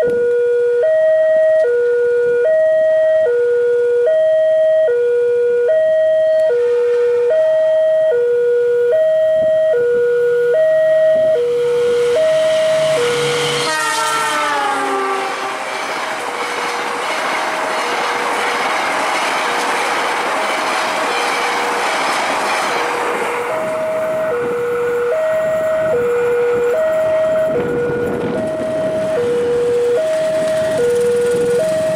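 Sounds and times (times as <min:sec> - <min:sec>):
locomotive horn: 0:00.0 - 0:16.2, 0:23.4 - 0:31.9
two-tone crossing alarm: 0:00.0 - 0:16.5, 0:23.0 - 0:31.9
train running past: 0:06.4 - 0:08.1, 0:10.9 - 0:31.9.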